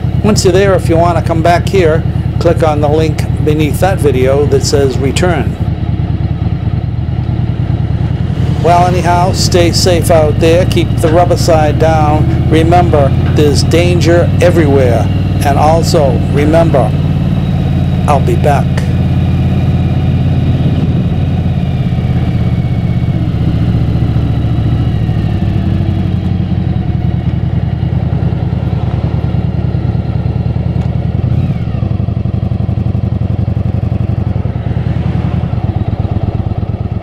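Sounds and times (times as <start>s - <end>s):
motorcycle engine running: 0.0s - 37.0s.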